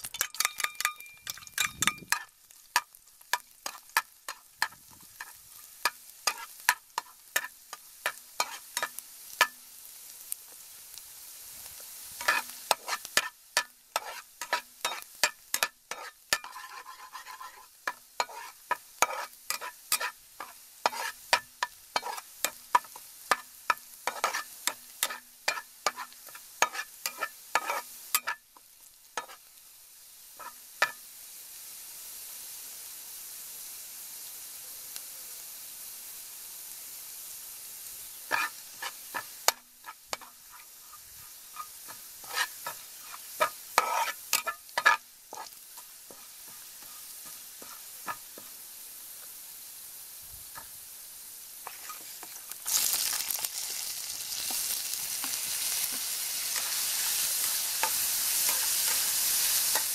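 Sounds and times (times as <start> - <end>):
metal spatula scraping a wok: 0.0 - 9.6, 11.8 - 28.5, 29.2 - 29.5, 30.4 - 31.0, 38.2 - 48.5, 51.6 - 59.9
garlic sizzling in oil: 0.0 - 59.9.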